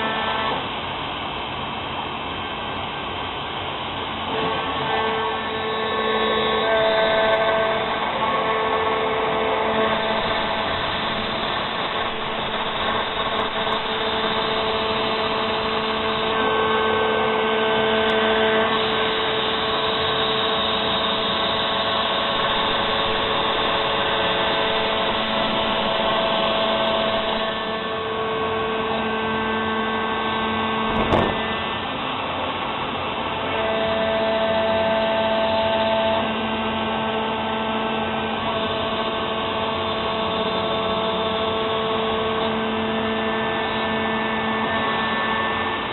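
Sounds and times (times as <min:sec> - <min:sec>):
router spindle whirring: 0:00.0 - 0:00.8, 0:04.1 - 0:45.9
sharp click: 0:30.9 - 0:31.4.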